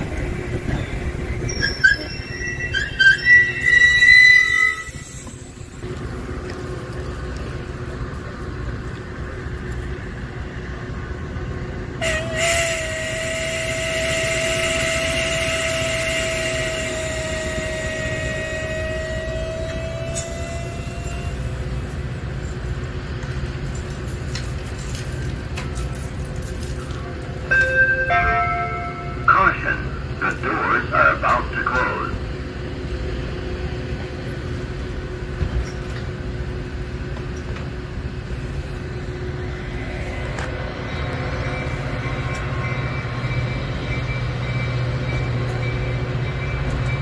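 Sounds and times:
idling train rumble: 0.0 - 47.0
steady high tone: 27.5 - 32.0.

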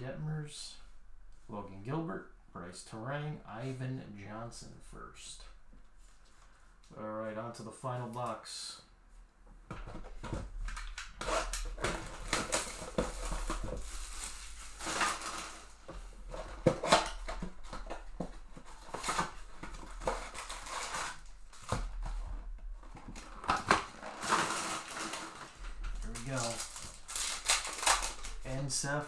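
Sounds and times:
card packs rustling: 10.2 - 29.0
plastic shrink wrap tearing: 10.7 - 22.0, 22.9 - 29.0.

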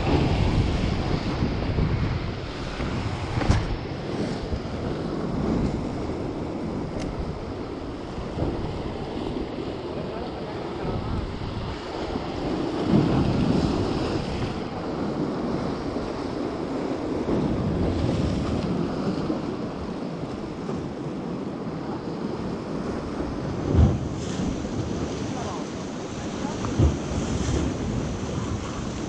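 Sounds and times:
sea waves washing in: 0.0 - 29.0
wind rumbling on microphone: 0.0 - 29.0
short thump: 3.3 - 3.8.

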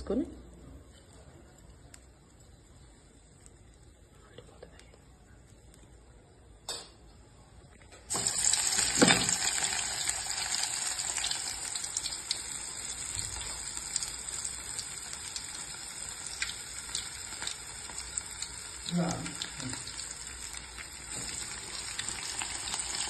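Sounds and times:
batter sizzling in hot oil: 8.1 - 23.0.

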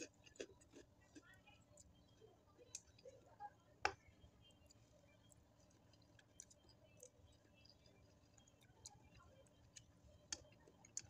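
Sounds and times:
chewing and slurping noodles: 0.0 - 1.2.

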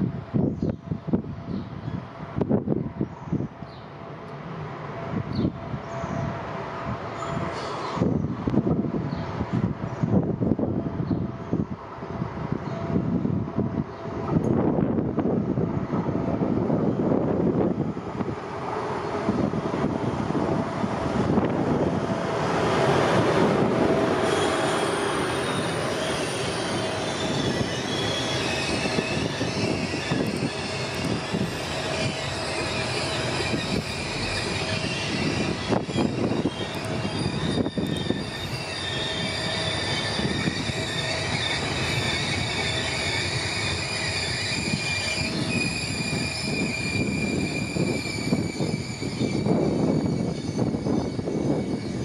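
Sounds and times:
train rumble: 0.0 - 52.0
train wheels squealing: 5.2 - 6.4, 7.1 - 8.4, 22.5 - 52.0.

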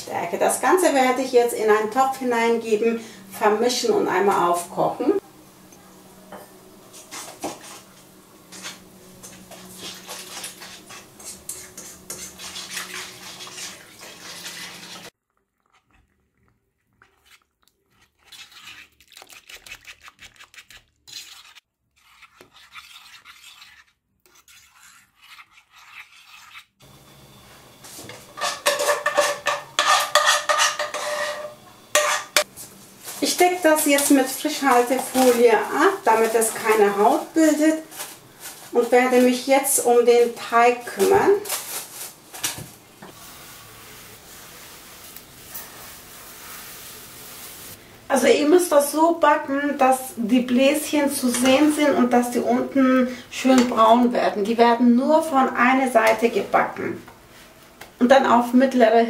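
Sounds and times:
clanking and scraping into metal bowl: 5.8 - 26.6, 27.9 - 43.2, 49.8 - 52.7
metal whisk scraping a pan: 6.9 - 26.8, 28.0 - 47.8, 49.6 - 54.0.

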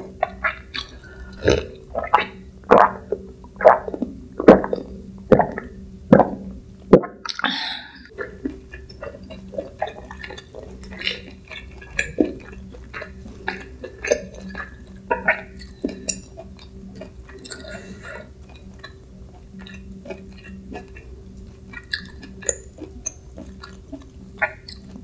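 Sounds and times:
person gulping a drink: 0.2 - 19.0
breathy exhale: 1.0 - 1.6.

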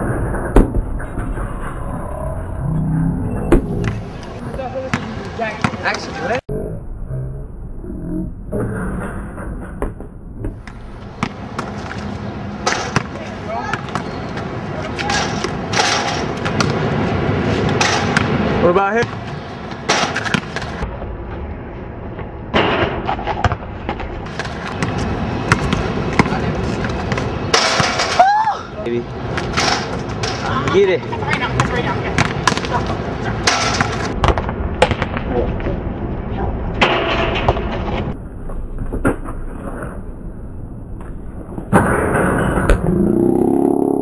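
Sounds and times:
low rumble: 0.0 - 4.5, 6.4 - 11.5, 34.1 - 44.0
basketballs bouncing on asphalt: 3.5 - 6.3, 9.8 - 17.0, 17.6 - 20.9, 23.2 - 28.0, 29.2 - 35.6.

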